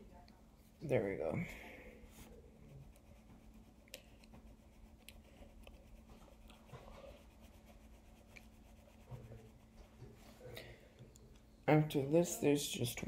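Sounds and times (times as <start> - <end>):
pen scratching on paper: 2.2 - 10.2.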